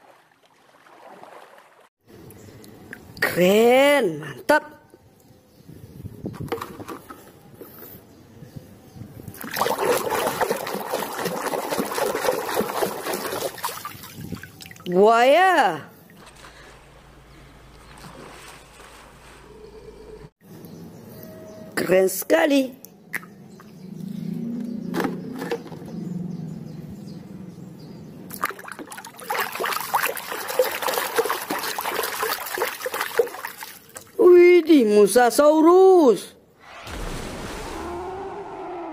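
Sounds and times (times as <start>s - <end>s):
water sloshing in plastic basin: 9.3s - 15.0s, 28.3s - 34.2s.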